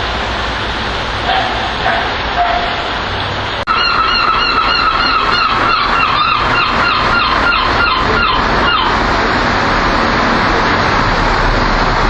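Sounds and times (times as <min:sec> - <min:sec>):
steady background noise: 0:00.0 - 0:12.0
gull calling: 0:03.7 - 0:09.0.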